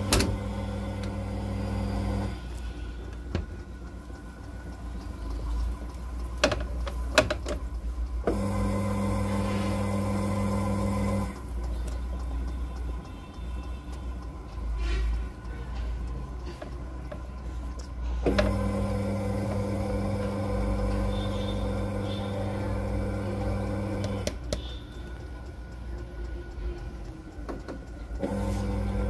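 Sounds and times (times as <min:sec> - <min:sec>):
motor hum: 0:00.0 - 0:06.4, 0:08.1 - 0:12.6, 0:18.2 - 0:24.8, 0:28.1 - 0:29.0.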